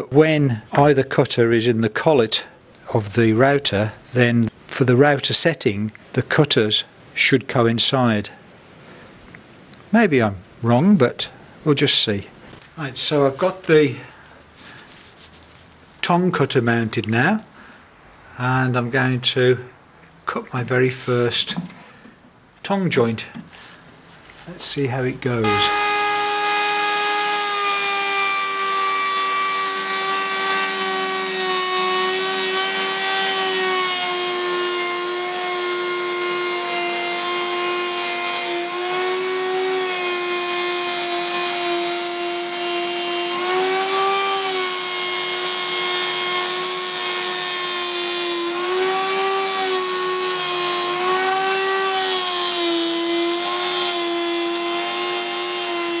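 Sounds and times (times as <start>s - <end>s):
router motor whine: 25.4s - 56.0s.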